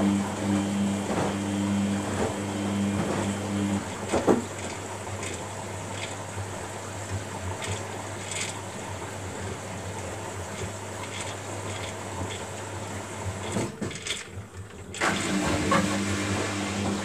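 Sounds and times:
washing machine drum turning: 10.4s - 17.0s.

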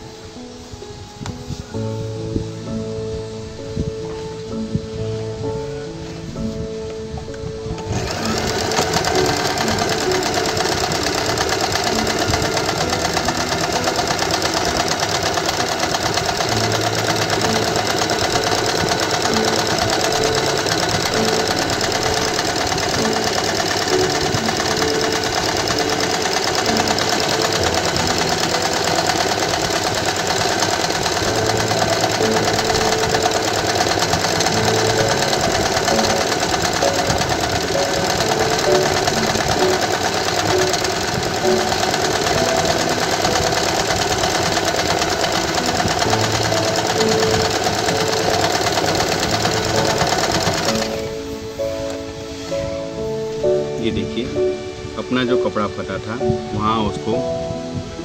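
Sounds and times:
electric sewing machine stitching: 7.8s - 52.1s.

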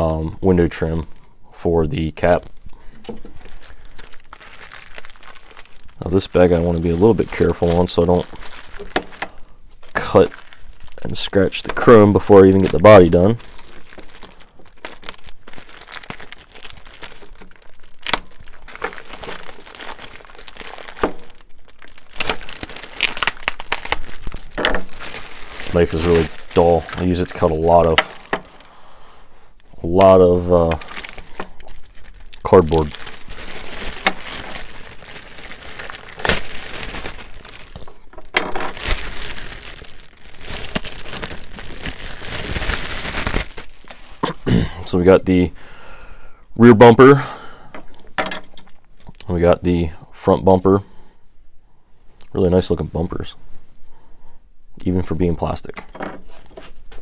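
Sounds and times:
plastic bag crinkling: 2.2s - 29.0s, 29.6s - 44.4s.

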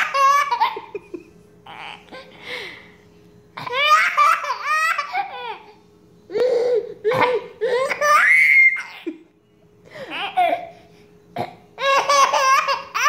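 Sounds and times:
baby laughing and squealing: 7.2s - 9.1s.

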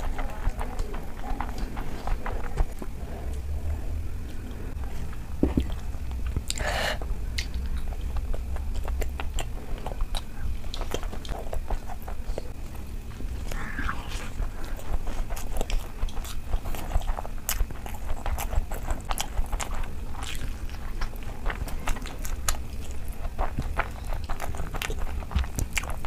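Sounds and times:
chewing and mouth smacking: 0.0s - 3.5s, 4.3s - 26.0s.

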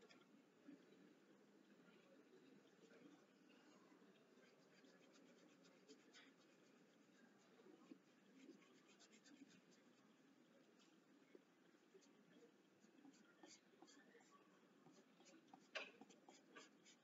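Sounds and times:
low steady hiss: 0.0s - 17.0s
pencil scratching on paper: 4.4s - 10.0s, 12.8s - 17.0s.

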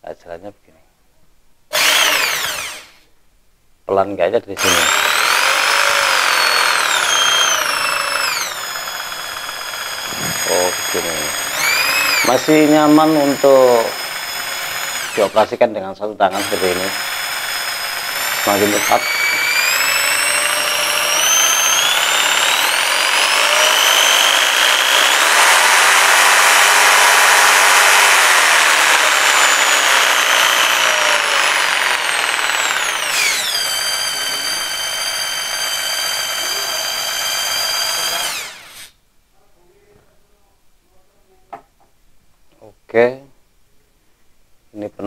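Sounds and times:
jigsaw motor whine: 1.7s - 3.0s, 4.6s - 15.5s, 16.3s - 38.9s.

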